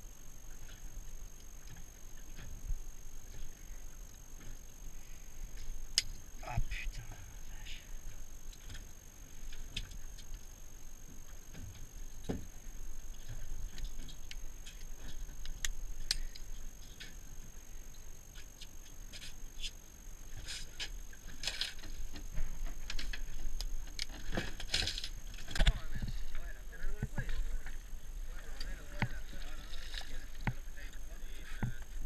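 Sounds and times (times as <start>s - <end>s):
wind and boat rumble: 20.8s - 32.0s.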